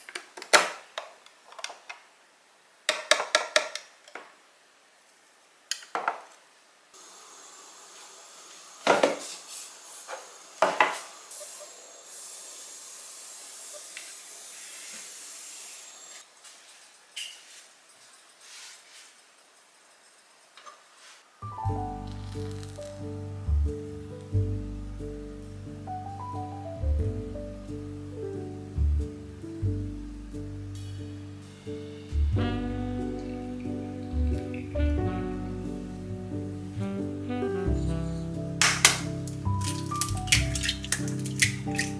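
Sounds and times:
steady hiss: 3.9s - 26.8s, 27.4s - 41.9s
objects knocked on counter: 5.9s - 6.3s.

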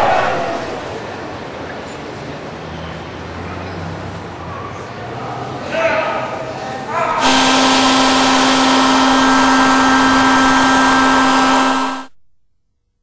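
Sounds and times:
vacuum cleaner running: 7.2s - 12.1s.

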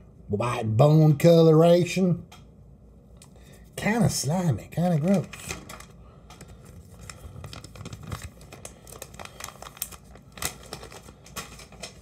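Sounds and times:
plastic packaging crinkling: 4.8s - 12.0s.

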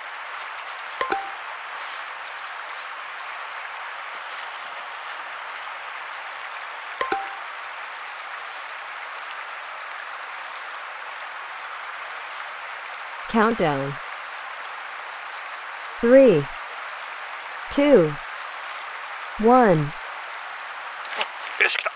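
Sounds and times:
steady outdoor hiss: 0.0s - 21.9s
double-blip message alert: 1.0s - 1.4s, 7.0s - 7.4s.

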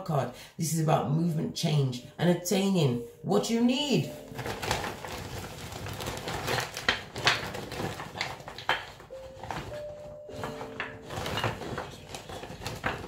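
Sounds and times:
plastic bag rustling: 4.0s - 13.0s.

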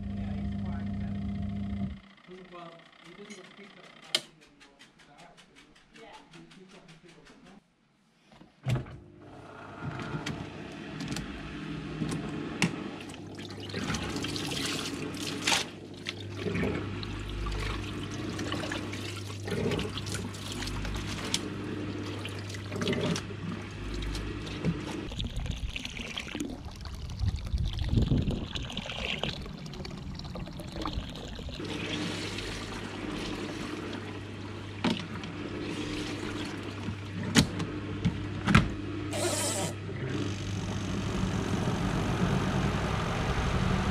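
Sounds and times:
washing machine motor hum: 0.0s - 4.1s, 8.7s - 43.9s
water sloshing: 13.0s - 37.1s.

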